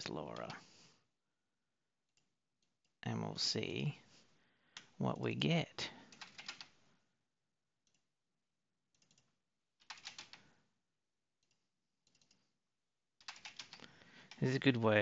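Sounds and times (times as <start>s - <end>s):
faint keyboard typing: 0.0s - 0.8s, 4.0s - 6.8s, 9.0s - 10.6s, 11.4s - 12.5s, 13.2s - 15.0s.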